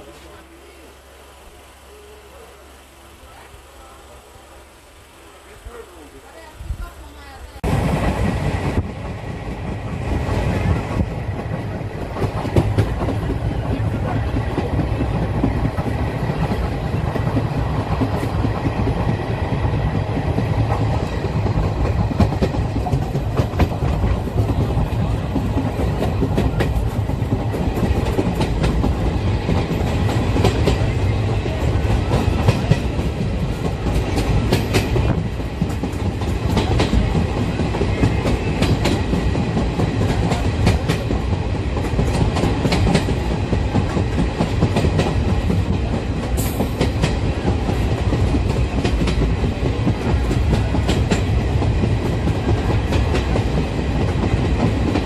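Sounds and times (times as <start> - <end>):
train low rumble: 0.0 - 55.0
train wheels clattering: 7.7 - 55.0.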